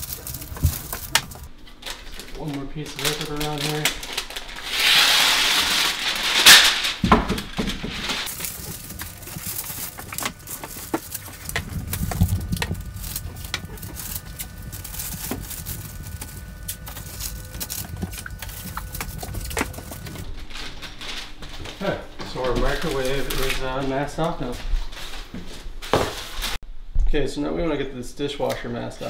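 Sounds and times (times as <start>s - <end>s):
paper tearing: 0.0s - 21.4s
paper crinkling: 0.0s - 26.6s.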